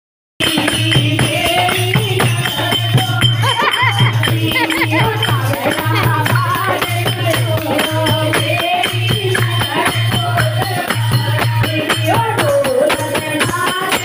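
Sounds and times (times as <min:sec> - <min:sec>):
group of women singing: 0:00.4 - 0:14.0
jingling percussion: 0:00.4 - 0:14.0
low drum beat: 0:01.0 - 0:08.2.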